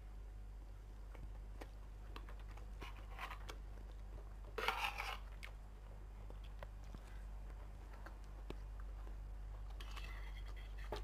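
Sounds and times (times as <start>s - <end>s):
quiet chewing of crisp food: 0.8s - 11.0s
cutlery scraping a ceramic plate: 4.6s - 5.3s.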